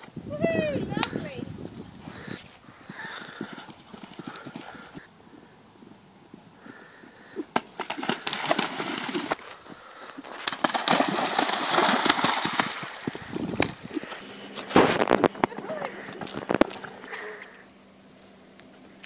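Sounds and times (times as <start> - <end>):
horse hoofbeats: 2.0 - 17.3
hooves splashing water: 2.1 - 5.1, 6.3 - 17.6.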